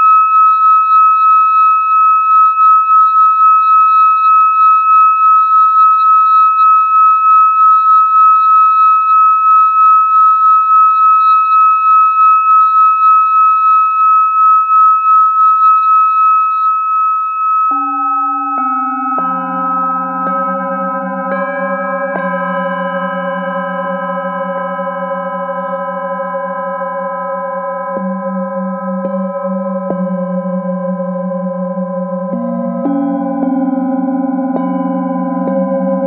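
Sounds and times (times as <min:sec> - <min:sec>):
bowl struck ringing: 0:00.0 - 0:36.0
singing bowl ringing tone: 0:00.0 - 0:36.0.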